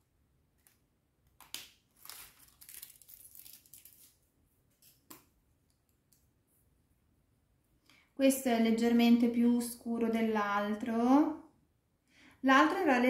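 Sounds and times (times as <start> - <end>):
packing paper crinkling: 1.4 - 5.0.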